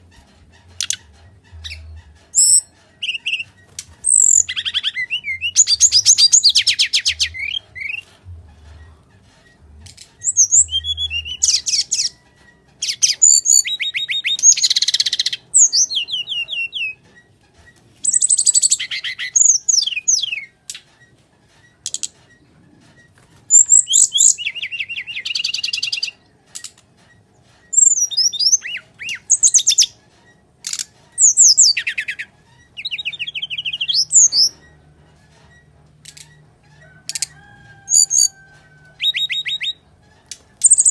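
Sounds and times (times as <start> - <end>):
bird singing trills and whistles: 0.7 - 8.1, 10.2 - 12.2, 12.8 - 17.0, 18.0 - 20.6, 23.5 - 26.2, 27.7 - 30.0, 30.7 - 34.7, 37.2 - 39.9, 40.6 - 40.9.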